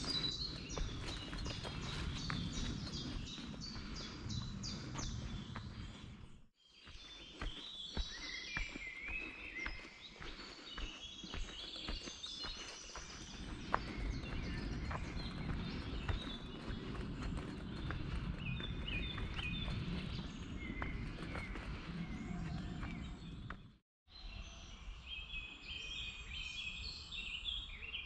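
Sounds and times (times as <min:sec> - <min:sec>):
wind rumble: 0:00.0 - 0:06.5, 0:12.5 - 0:23.8
footsteps: 0:00.0 - 0:23.7
songbirds singing and calling: 0:00.0 - 0:28.0.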